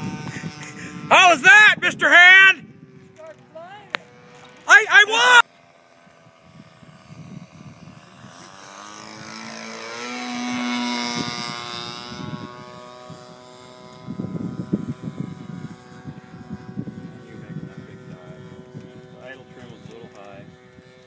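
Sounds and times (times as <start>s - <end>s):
model airplane engine flying past: 0.0s - 21.0s
gusty low rumbling: 6.3s - 20.9s.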